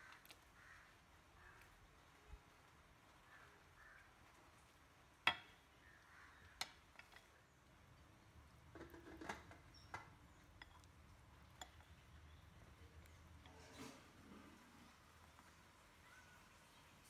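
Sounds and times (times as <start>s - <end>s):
spatula scraping glass bowl: 13.4s - 14.7s.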